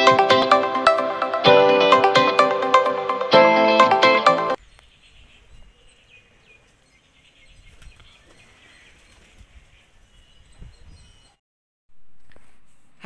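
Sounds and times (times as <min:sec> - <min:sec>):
guitar music: 0:00.0 - 0:04.6
wind rumble on microphone: 0:09.3 - 0:11.4.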